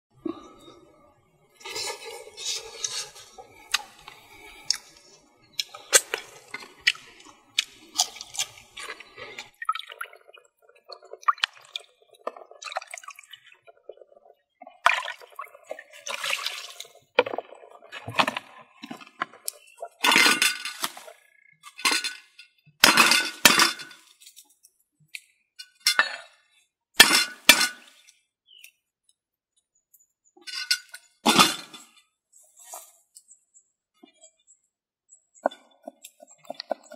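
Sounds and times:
water splashing and dripping: 5.7s - 18.2s.

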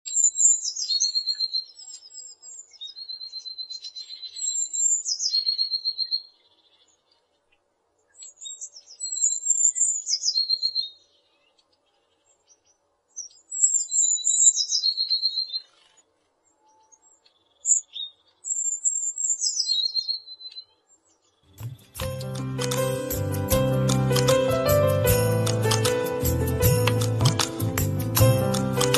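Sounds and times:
songbird singing trills: 0.1s - 7.3s, 8.0s - 21.6s.

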